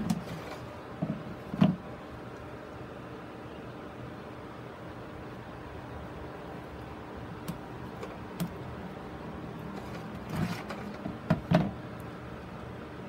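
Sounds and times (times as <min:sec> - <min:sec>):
plastic board knocking and clicking: 0:01.0 - 0:01.8, 0:10.4 - 0:11.8.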